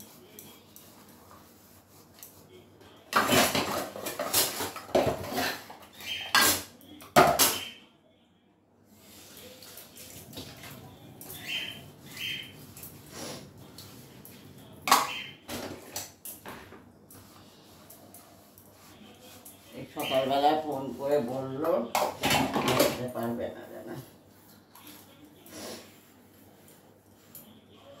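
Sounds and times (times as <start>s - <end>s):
utensils clattering in sink: 3.1s - 7.6s, 19.8s - 23.4s.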